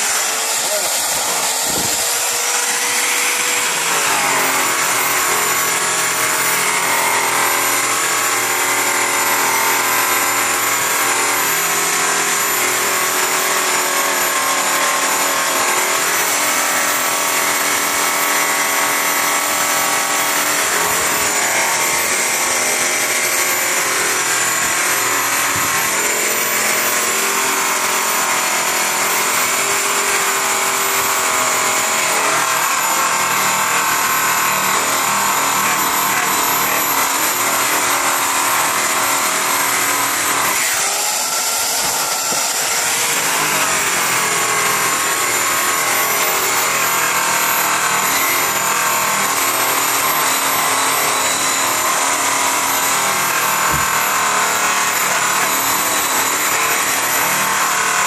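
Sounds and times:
buffing wheel rubbing metal: 0:00.0 - 0:05.9
electric buffer motor whine: 0:00.0 - 0:58.0.

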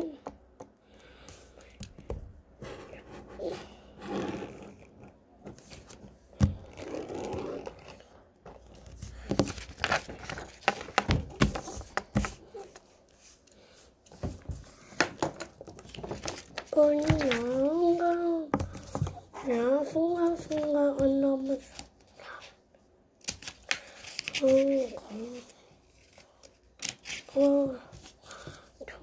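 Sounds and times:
paper rustling and crinkling: 0:05.4 - 0:19.2, 0:23.2 - 0:28.7.

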